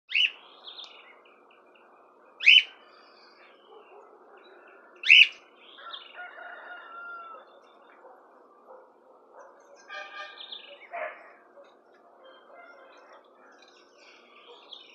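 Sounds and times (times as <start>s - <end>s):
bird twittering: 0.1s - 1.0s, 2.4s - 4.0s, 5.0s - 5.9s.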